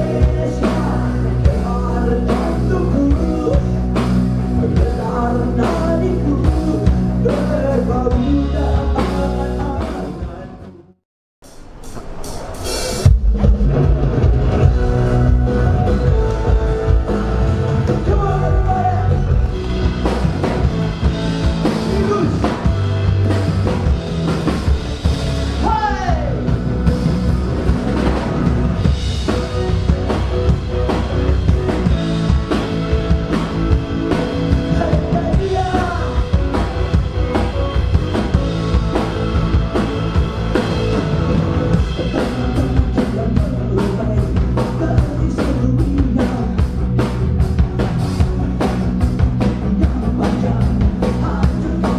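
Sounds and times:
man singing: 0:00.0 - 0:11.0, 0:14.6 - 0:19.4, 0:34.5 - 0:36.6, 0:41.7 - 0:46.8, 0:49.4 - 0:51.9
rock band playing: 0:00.0 - 0:51.9.

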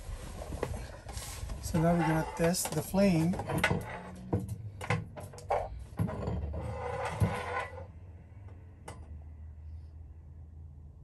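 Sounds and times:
rough metal scraping: 0:01.0 - 0:04.4, 0:05.4 - 0:07.9.

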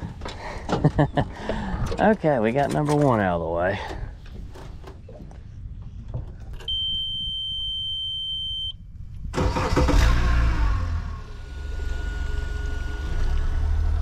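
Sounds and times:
high electronic beep: 0:06.7 - 0:08.8
outboard motor starting and running: 0:09.3 - 0:14.0.

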